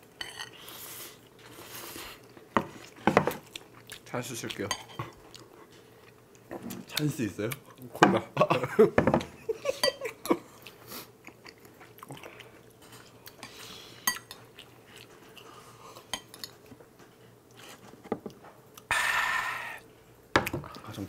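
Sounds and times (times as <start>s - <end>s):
chewing: 10.4s - 16.7s
loud breathy sound: 18.9s - 19.8s.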